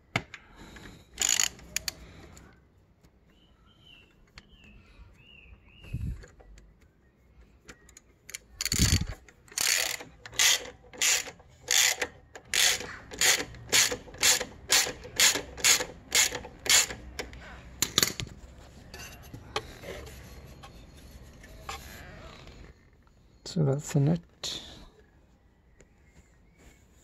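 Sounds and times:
ratchet wrench clicking: 0:01.2 - 0:02.0, 0:08.3 - 0:17.4.

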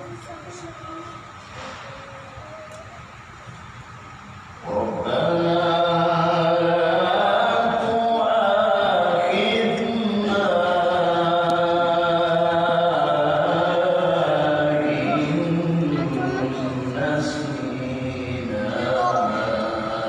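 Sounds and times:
man chanting into microphone: 0:04.6 - 0:20.0.

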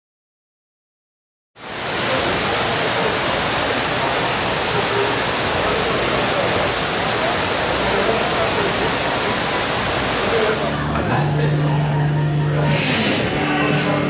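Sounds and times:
steady rushing outdoor noise: 0:01.6 - 0:11.8.

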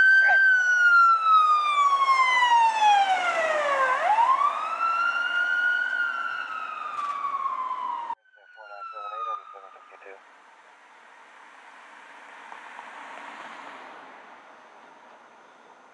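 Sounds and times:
ambulance siren wailing: 0:00.0 - 0:10.5.

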